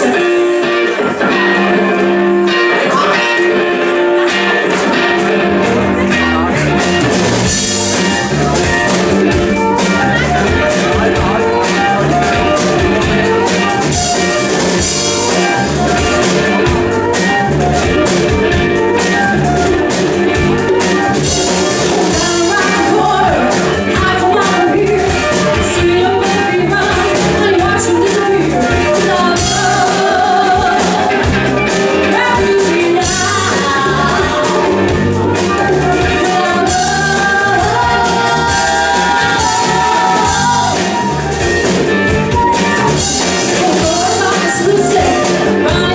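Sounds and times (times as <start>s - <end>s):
live funk band playing: 0.0s - 45.9s
woman singing: 7.8s - 41.2s, 42.4s - 45.9s
flute: 7.9s - 23.6s, 35.4s - 45.6s.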